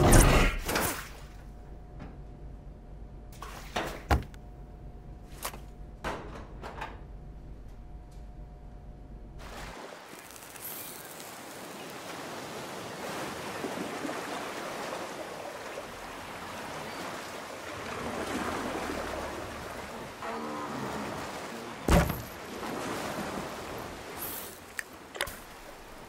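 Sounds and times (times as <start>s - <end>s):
loud wooden thump: 4.0s - 4.3s, 21.9s - 22.4s
water lapping around jetty: 9.4s - 26.0s.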